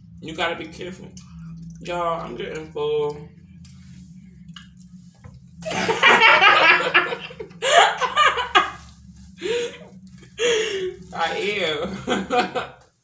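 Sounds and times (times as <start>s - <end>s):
girl and woman laughing: 5.7s - 8.8s.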